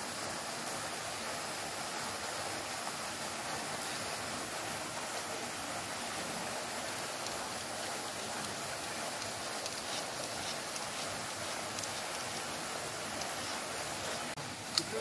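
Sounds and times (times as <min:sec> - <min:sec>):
hiss of running water: 0:00.0 - 0:15.0.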